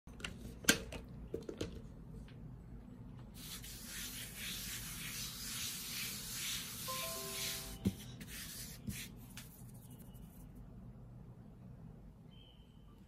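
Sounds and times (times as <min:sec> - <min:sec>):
hands swishing flour on a mat: 0:03.4 - 0:10.3.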